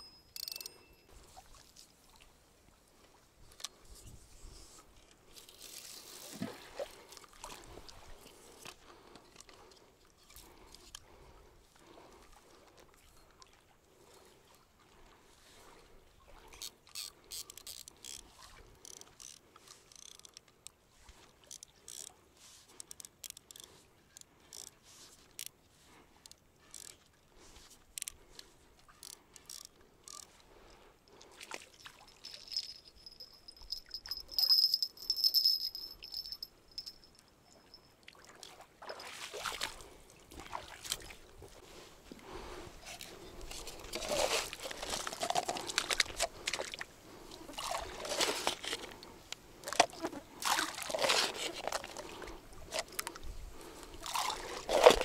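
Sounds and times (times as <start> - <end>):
fishing tackle clicks and handling: 0.0 - 0.9, 16.6 - 20.8, 21.4 - 25.6, 26.2 - 30.4, 31.8 - 37.2, 42.8 - 46.9, 47.7 - 55.0
wet scraping and sloshing: 38.4 - 55.0.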